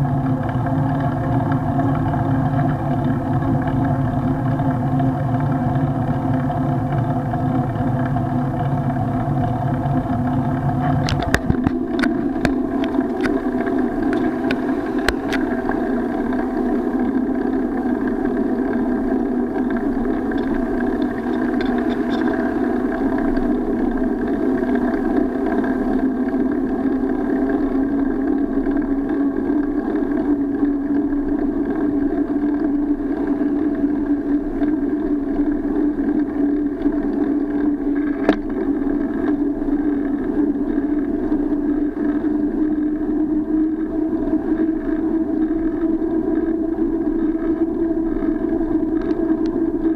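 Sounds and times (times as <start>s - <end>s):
bicycle rumble and rattle: 0.0s - 49.9s
wind noise: 0.0s - 49.9s
sharp clicks and knocks: 10.8s - 15.7s.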